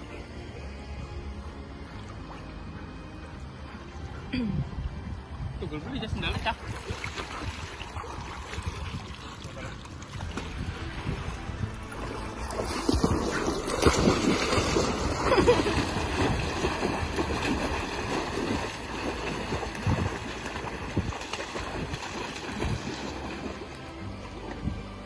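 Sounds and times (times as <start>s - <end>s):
splashing through shallow water: 6.3s - 25.0s.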